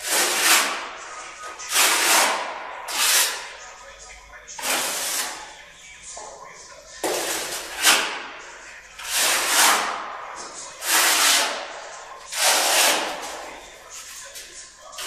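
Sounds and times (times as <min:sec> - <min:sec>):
putty knife scraping on concrete: 0:00.0 - 0:00.9, 0:01.5 - 0:03.5, 0:04.6 - 0:05.5, 0:09.0 - 0:10.0, 0:10.8 - 0:13.5.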